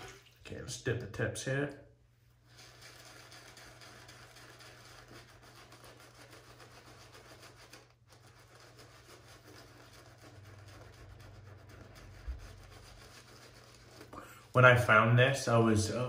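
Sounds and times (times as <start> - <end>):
shaving brush swishing in lather: 2.4 - 14.4.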